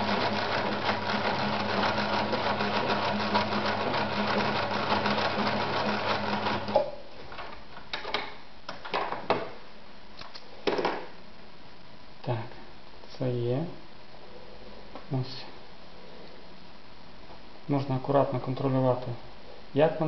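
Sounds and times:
sewing machine running: 0.0 - 6.8.

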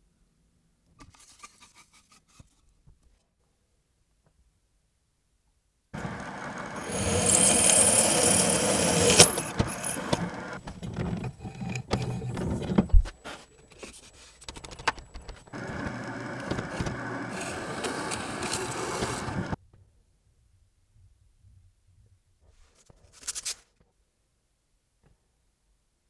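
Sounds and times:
drill press whining: 6.0 - 12.9, 14.9 - 19.6.

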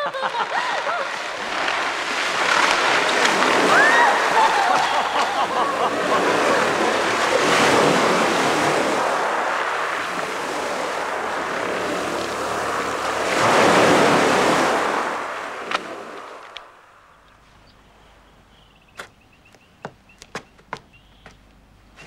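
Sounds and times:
loud rushing noise: 1.3 - 16.4.

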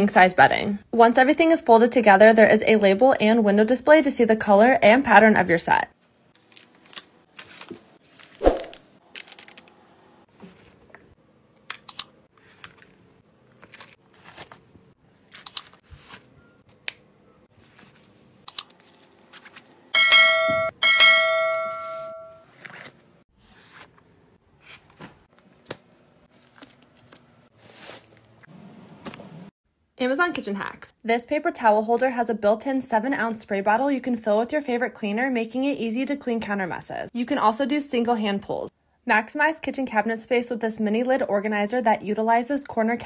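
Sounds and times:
bright bell-like chime: 20.0 - 22.4.

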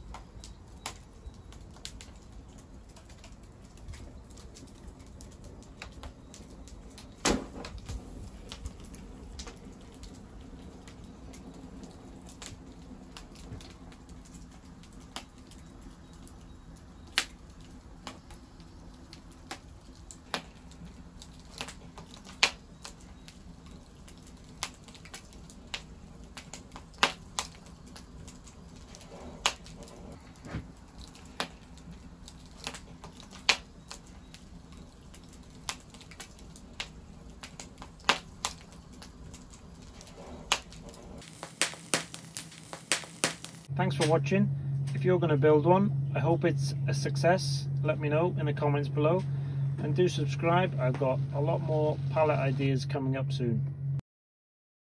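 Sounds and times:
rush of flame: 0.0 - 43.7
wood fire crackling: 0.0 - 45.2, 45.8 - 52.8.

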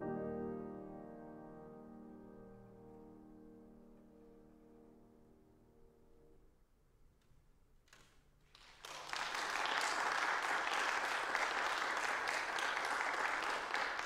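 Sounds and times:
stray claps: 7.9 - 14.0
audience applause: 8.5 - 14.0.

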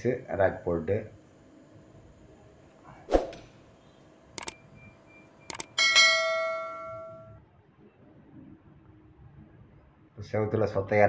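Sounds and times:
mouse clicks: 4.4 - 4.6, 5.5 - 5.7
bell chime: 5.8 - 7.4.

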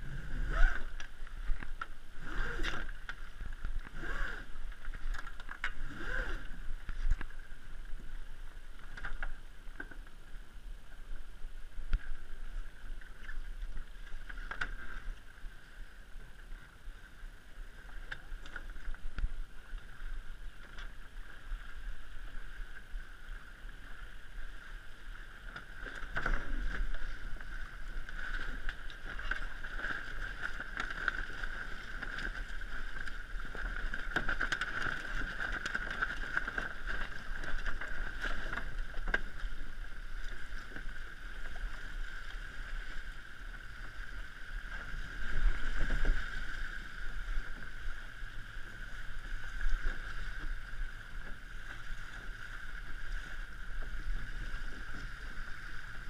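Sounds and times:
water rushing along a boat hull: 0.0 - 56.0.

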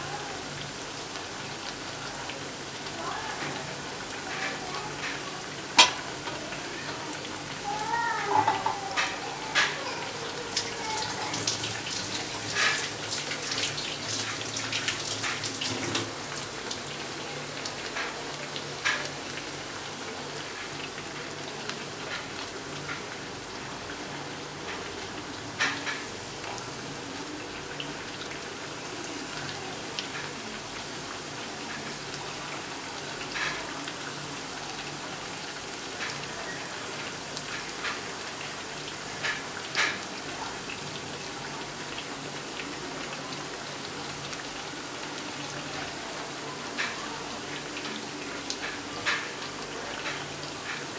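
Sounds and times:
food deep-frying in oil: 0.0 - 50.9
metal spoon stirring oil: 5.8 - 6.4.

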